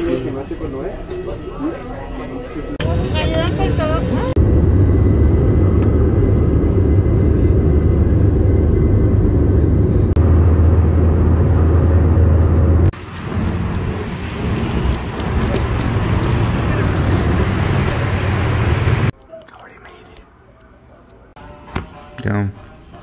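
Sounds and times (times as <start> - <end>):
street traffic noise: 0.0 - 23.0
jet engines rumbling: 2.7 - 19.1.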